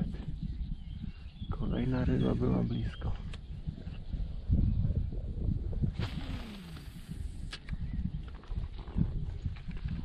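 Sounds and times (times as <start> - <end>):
wind rumble on microphone: 0.0 - 10.0.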